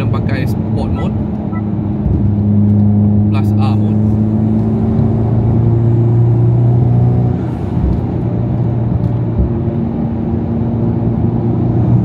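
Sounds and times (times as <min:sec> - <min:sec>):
car engine drone: 0:00.0 - 0:12.0
road noise: 0:00.0 - 0:12.0.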